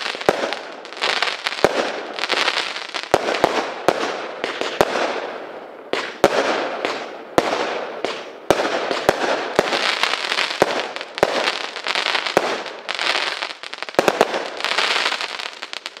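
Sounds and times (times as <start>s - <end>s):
firework bangs: 0.0s - 16.0s
firework crackling: 0.0s - 16.0s.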